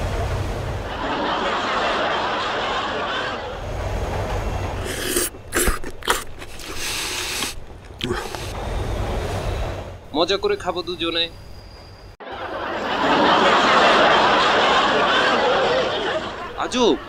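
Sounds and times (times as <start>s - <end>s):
train running in a tunnel: 0.0s - 17.0s
person slurping noodles: 4.8s - 8.6s.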